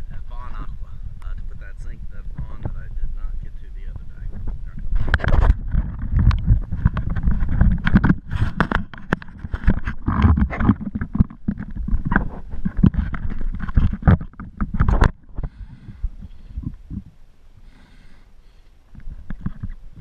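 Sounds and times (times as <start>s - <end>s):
wind buffeting microphone: 0.0s - 17.7s
diving gear knocking and rustling: 4.2s - 17.1s, 18.9s - 20.0s.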